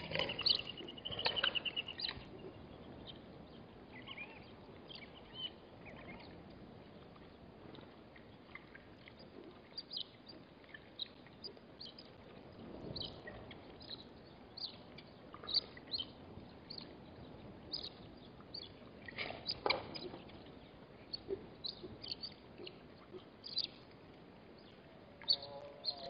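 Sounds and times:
small birds chirping: 0.0s - 26.0s
wind hiss on microphone: 11.8s - 21.0s.

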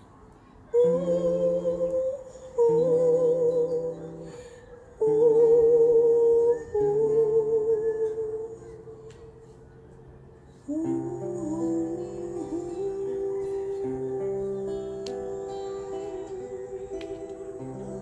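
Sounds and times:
woman humming with vibrato: 10.7s - 18.0s.

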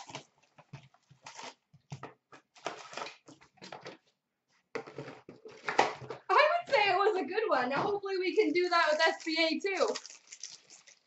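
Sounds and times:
wrappers and cardboard crinkling: 0.0s - 3.8s.

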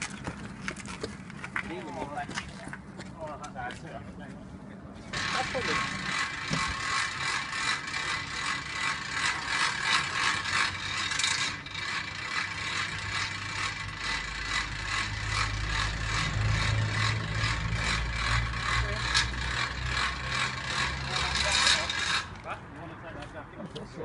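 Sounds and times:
winch ratcheting: 5.2s - 22.5s.

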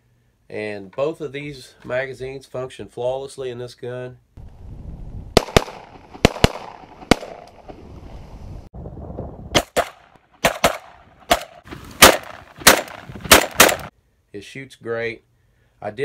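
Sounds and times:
shotgun shots: 5.3s - 7.6s, 9.5s - 13.9s
shotgun action cycling: 12.0s - 13.9s.

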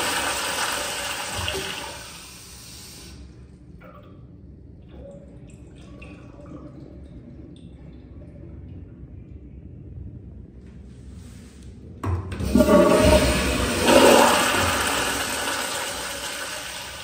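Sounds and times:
toilet flush water rush: 0.0s - 3.1s, 12.3s - 17.0s
faint water drips: 3.7s - 9.7s
toilet bowl refilling trickle: 4.9s - 7.7s, 12.4s - 17.0s.

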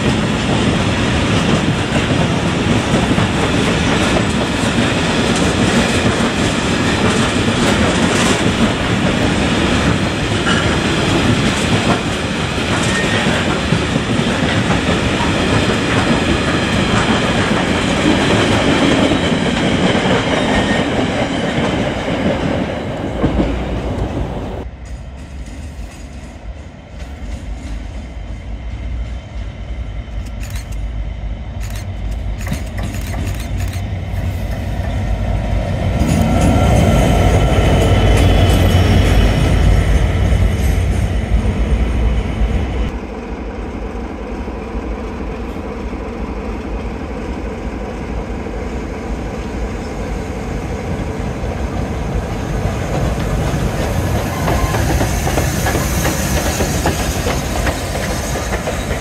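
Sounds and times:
steam locomotive working: 0.0s - 59.0s
train approaching and passing: 0.0s - 59.0s
steam hissing: 52.7s - 59.0s.

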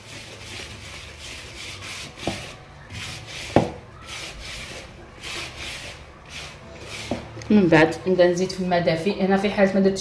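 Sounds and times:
hand rubbing flour in plastic bowl: 0.0s - 7.3s.

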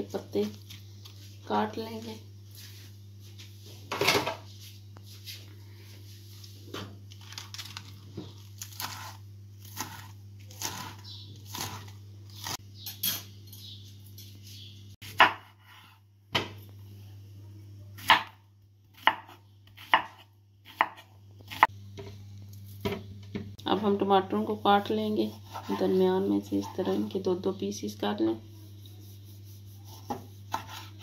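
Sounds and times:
knife chopping lettuce on board: 8.7s - 12.5s, 19.0s - 21.7s, 29.8s - 31.0s.

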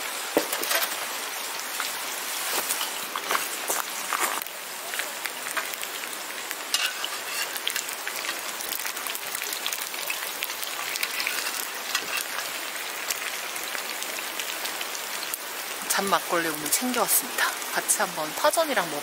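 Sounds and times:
pancakes sizzling in oil: 0.0s - 19.0s.

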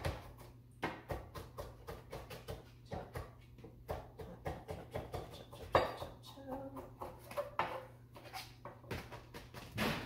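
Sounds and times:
knife chopping on cutting board: 0.0s - 9.6s.

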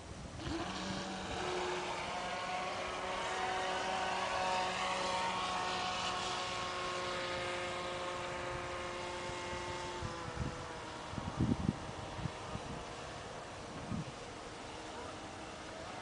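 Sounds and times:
hull hissing across water: 0.3s - 5.8s
electric motor high whine: 0.4s - 16.0s.

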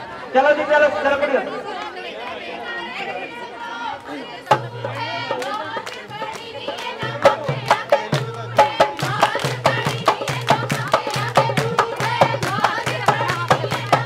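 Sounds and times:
women singing: 1.2s - 14.0s
rhythmic handclaps: 4.0s - 14.0s.

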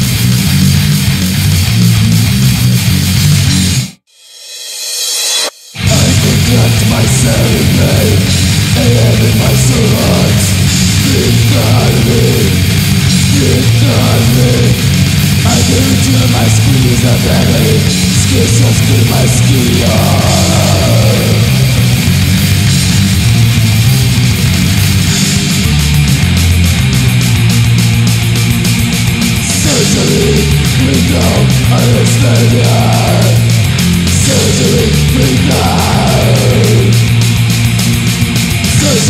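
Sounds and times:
death metal with distorted guitars: 0.0s - 39.0s.

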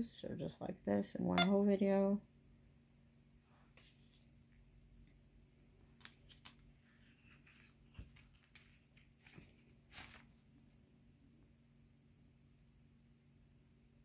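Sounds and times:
faint steady hum: 0.0s - 14.0s
paper rustles and scrapes: 3.6s - 4.4s, 6.0s - 10.8s.

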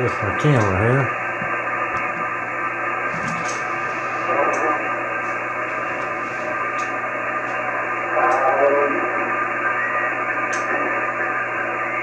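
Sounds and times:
garbled radio signal: 0.0s - 1.1s, 3.8s - 5.4s, 7.6s - 12.0s
radio receiver hiss: 2.9s - 12.0s.

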